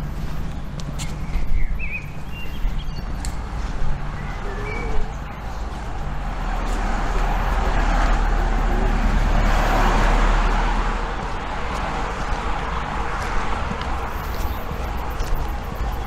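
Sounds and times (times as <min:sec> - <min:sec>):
car passing: 0:00.0 - 0:16.0.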